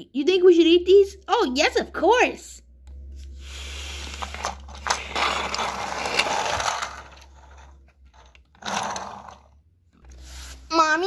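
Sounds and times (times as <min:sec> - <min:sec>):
toy wheels rolling and rattling: 0:04.0 - 0:09.6.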